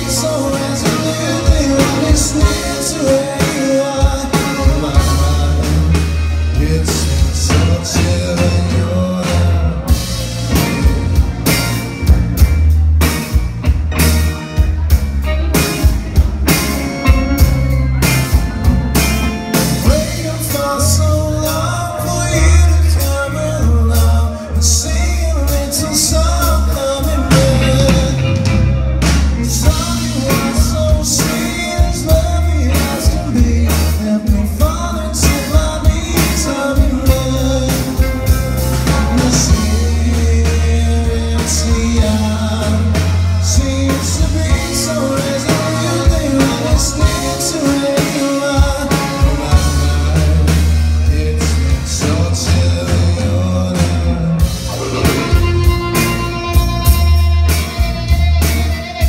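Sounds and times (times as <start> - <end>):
man singing lead vocal: 0.0 - 11.5, 15.9 - 57.8
live rock band playing: 0.0 - 59.0.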